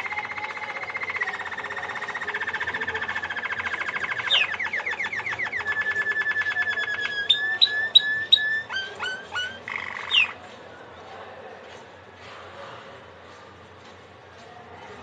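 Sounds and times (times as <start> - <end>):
canary singing: 0.0 - 10.4.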